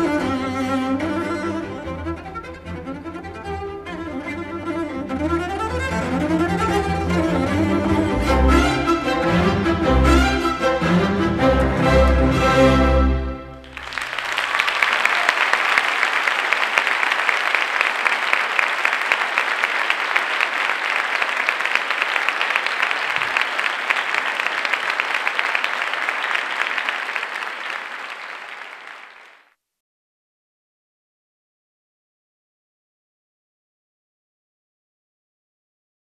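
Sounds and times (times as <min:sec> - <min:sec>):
orchestral chord with cello: 0:00.0 - 0:13.6
audience applauding: 0:13.6 - 0:29.5.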